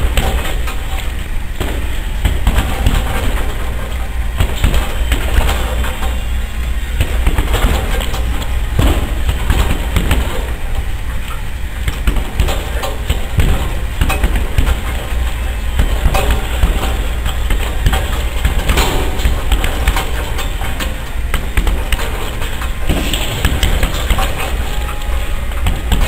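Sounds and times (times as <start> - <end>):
punches thudding on heavy bag: 0.0 - 0.7, 1.6 - 3.7, 4.4 - 6.0, 7.0 - 8.1, 8.7 - 10.6, 11.8 - 24.6, 25.6 - 26.0.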